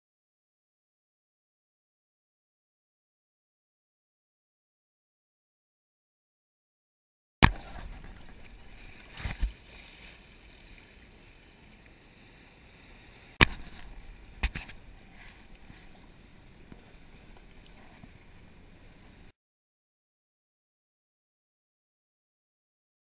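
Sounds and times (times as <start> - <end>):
faint steady hiss: 7.4 - 19.3.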